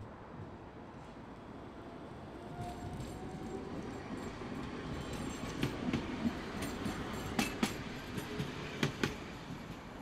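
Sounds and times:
tram running past: 0:00.3 - 0:10.0.

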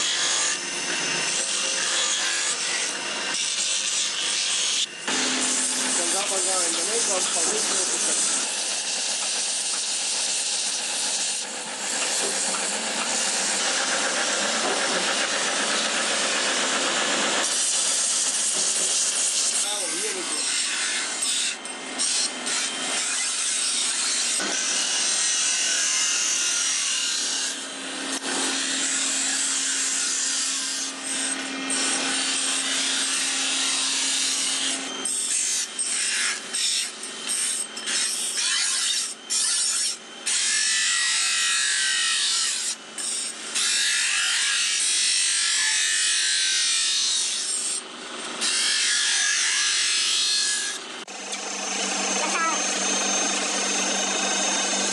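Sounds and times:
knife blade on bench grinder: 0:00.0 - 0:54.9.

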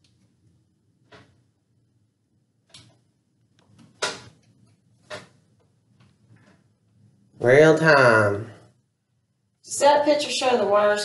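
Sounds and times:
clicks and knocks in electrical box: 0:03.6 - 0:05.4.

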